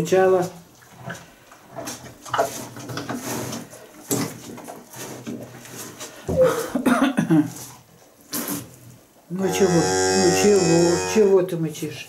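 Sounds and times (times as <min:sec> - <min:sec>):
cow mooing: 0:09.4 - 0:11.4.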